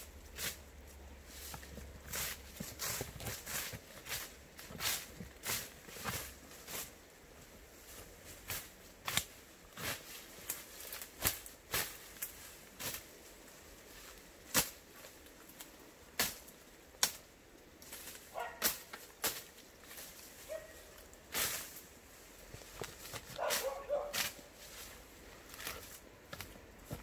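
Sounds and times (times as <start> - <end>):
footsteps through brush: 0.0 - 27.0
tool slashing plants: 8.4 - 13.0, 23.0 - 24.4.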